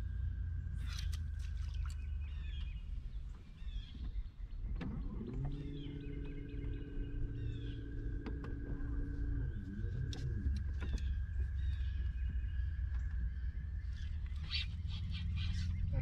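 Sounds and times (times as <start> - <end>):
birds chirping: 0.0 - 16.0
wind rumble on microphone: 0.0 - 16.0
electric motor humming: 4.7 - 13.8.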